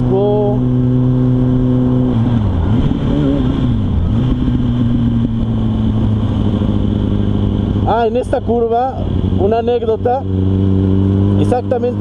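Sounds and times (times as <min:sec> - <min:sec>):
wind noise: 0:00.0 - 0:08.0
motorcycle engine running: 0:00.0 - 0:12.0.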